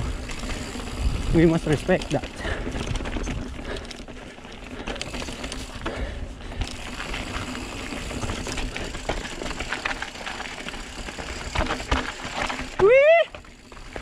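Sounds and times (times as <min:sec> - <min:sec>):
bike chain and frame rattling: 0:00.0 - 0:14.0
bike tyres crunching on gravel: 0:00.0 - 0:14.0.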